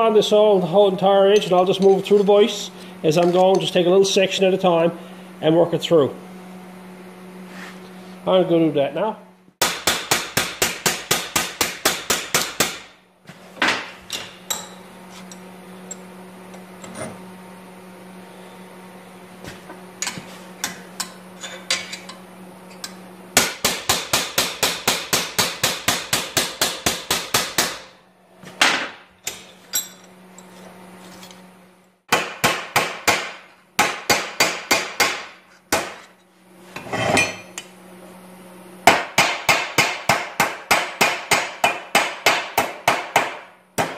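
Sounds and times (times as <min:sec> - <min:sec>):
steady low hum: 0:00.0 - 0:43.9
hammer striking steel bar: 0:09.6 - 0:12.9, 0:23.4 - 0:27.8, 0:32.1 - 0:36.1, 0:38.9 - 0:43.9.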